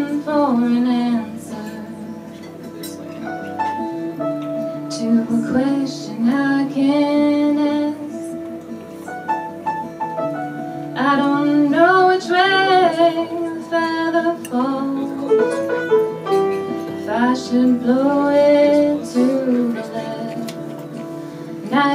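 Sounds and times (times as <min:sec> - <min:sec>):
woman singing: 0:00.0 - 0:02.4, 0:04.8 - 0:08.7, 0:10.9 - 0:15.6, 0:16.9 - 0:21.9
acoustic guitars and piano: 0:00.0 - 0:21.9.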